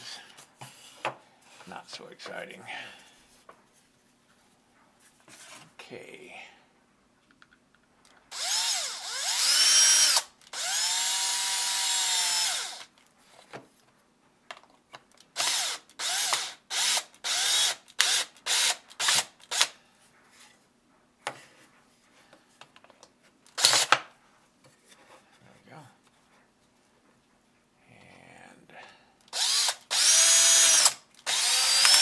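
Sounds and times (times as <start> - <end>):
cordless drill driving screw: 8.3 - 12.9, 15.4 - 19.8, 23.6 - 24.0, 29.3 - 32.0.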